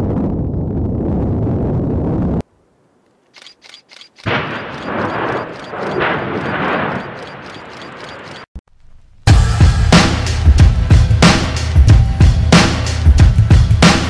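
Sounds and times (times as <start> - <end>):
deep rumble of ash explosion: 0.0 - 2.4
rapid sharp pops: 3.9 - 8.5.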